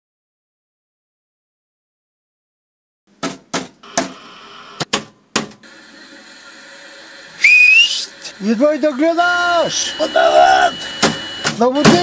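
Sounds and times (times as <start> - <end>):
television high-pitched whine: 3.8 - 12.0
hiss: 5.6 - 11.5.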